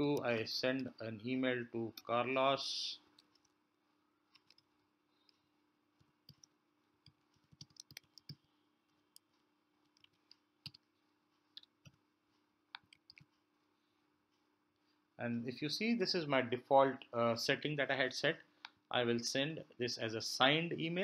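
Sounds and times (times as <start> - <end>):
keyboard typing clicks: 7.4 - 8.4.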